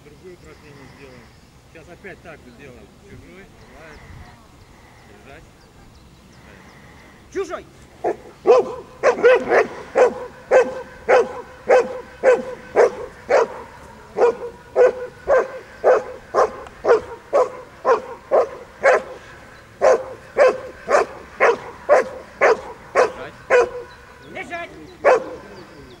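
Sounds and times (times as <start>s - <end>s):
dog barking: 8.0s - 24.1s, 25.0s - 25.8s.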